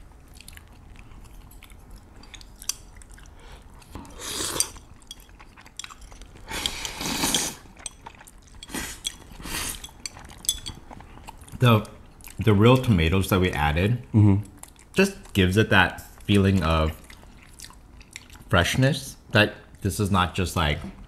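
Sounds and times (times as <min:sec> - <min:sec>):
chewing: 0:00.0 - 0:12.4, 0:14.4 - 0:18.5
slurping noodles: 0:04.0 - 0:04.8, 0:06.4 - 0:07.7.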